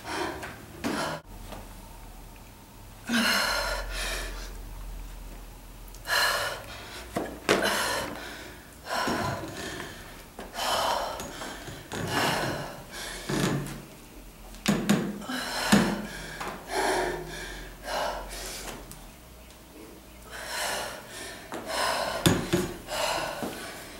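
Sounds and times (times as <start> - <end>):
woman breathing hard: 0.0 - 1.3, 3.0 - 4.6, 6.0 - 13.5, 15.2 - 18.8, 20.3 - 23.9.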